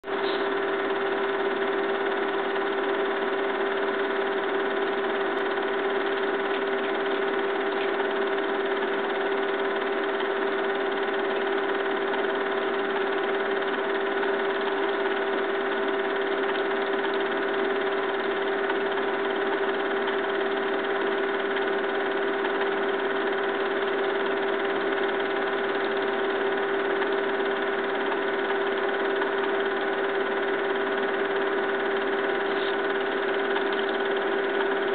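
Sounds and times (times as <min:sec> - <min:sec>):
film projector whirring: 0:00.0 - 0:34.9.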